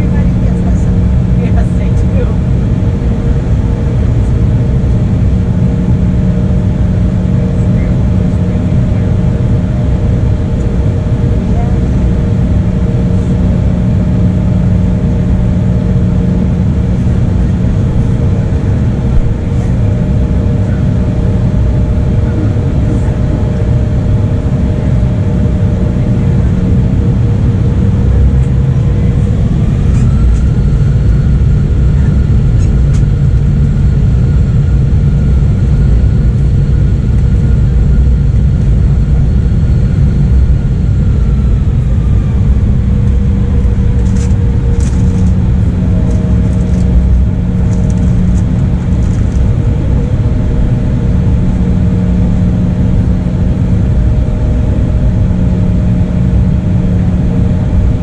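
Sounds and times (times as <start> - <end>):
high-pitched whine: 0.0 - 58.0
jet engine cabin rumble: 0.0 - 58.0
steady hums: 0.0 - 58.0.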